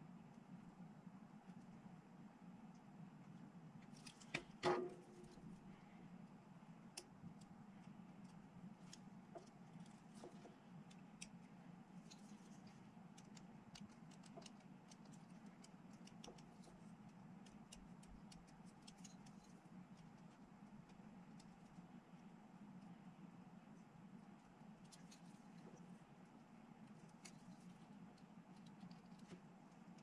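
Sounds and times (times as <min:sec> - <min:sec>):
low steady hum: 0:00.0 - 0:30.0
faint clicks of plastic parts: 0:02.6 - 0:30.0.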